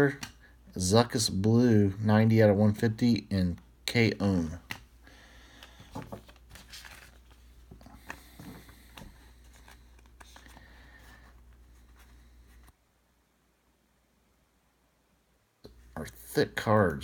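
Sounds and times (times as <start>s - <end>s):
low steady hum: 0.0s - 17.0s
trading cards flipped by hand: 5.6s - 10.7s.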